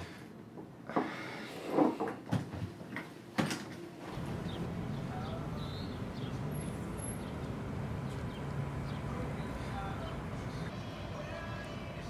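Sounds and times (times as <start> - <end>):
low street rumble: 4.0 - 12.0
birds chirping: 4.1 - 11.0.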